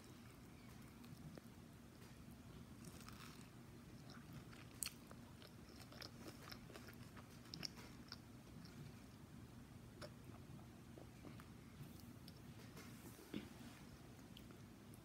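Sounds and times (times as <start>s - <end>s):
chewing crispy food: 0.1s - 9.2s.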